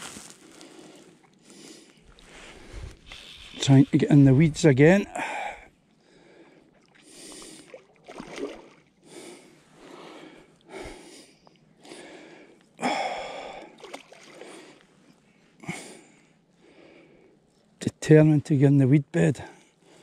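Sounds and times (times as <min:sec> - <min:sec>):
person breathing hard: 0:00.2 - 0:03.6, 0:05.1 - 0:07.8, 0:09.0 - 0:14.9, 0:15.6 - 0:17.4.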